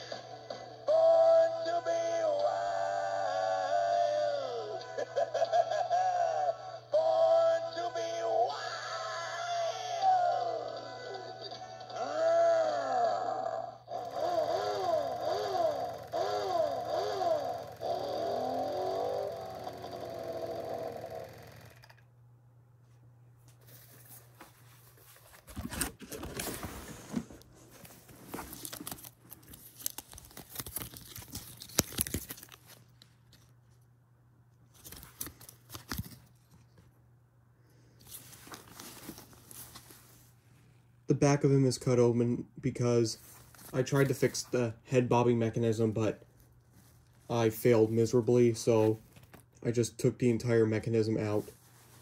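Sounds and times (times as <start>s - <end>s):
toy speaker wailing tone: 0.2s - 21.9s
card tag rustling: 23.6s - 33.5s, 34.7s - 36.8s.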